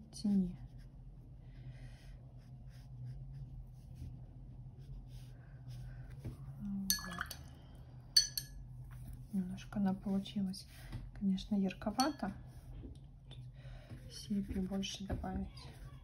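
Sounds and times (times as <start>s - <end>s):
brush scratching on paper: 0.2s - 1.4s, 2.1s - 5.9s
paintbrush clinking against glass jar: 6.9s - 7.5s, 8.2s - 8.6s, 11.9s - 12.4s.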